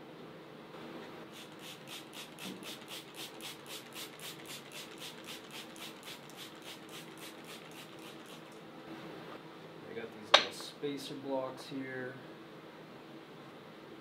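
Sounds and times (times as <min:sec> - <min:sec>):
spray bottle squirting: 0:01.3 - 0:08.6.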